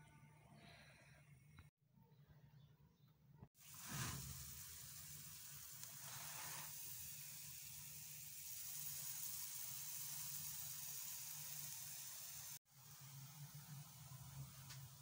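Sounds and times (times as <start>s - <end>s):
flatbread sizzling on hot pan: 3.6s - 15.0s.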